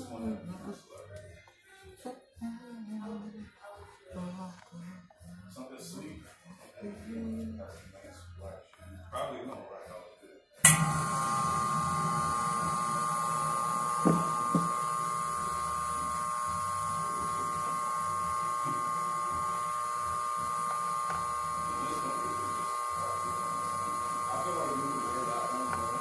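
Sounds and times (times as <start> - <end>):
steamer hissing steam: 10.6 - 26.0.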